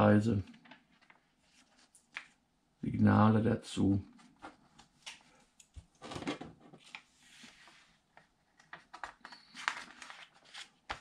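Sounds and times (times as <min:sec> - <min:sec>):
paper pages rustling: 0:00.9 - 0:02.4, 0:06.0 - 0:11.0.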